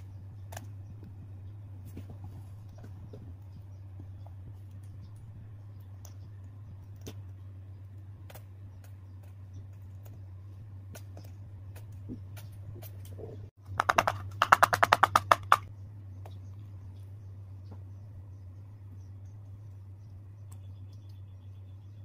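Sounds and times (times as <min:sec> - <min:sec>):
low steady hum: 0:00.0 - 0:22.0
fast sharp taps: 0:13.7 - 0:16.4.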